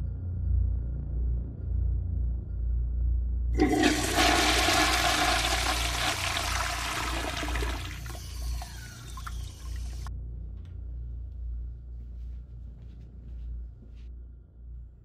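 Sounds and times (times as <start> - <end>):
toilet flushing: 3.6 - 10.1.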